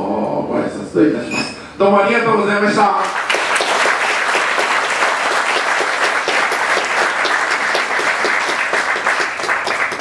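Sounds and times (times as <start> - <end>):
crowd applauding: 3.0 - 10.0.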